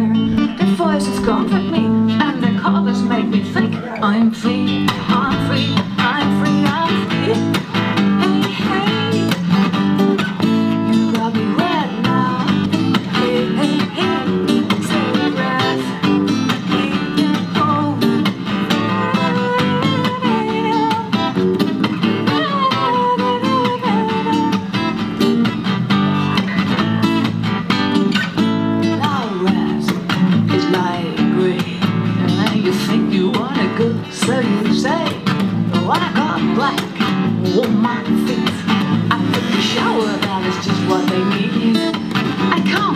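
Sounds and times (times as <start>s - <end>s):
acoustic guitar strumming: 0.0s - 42.9s.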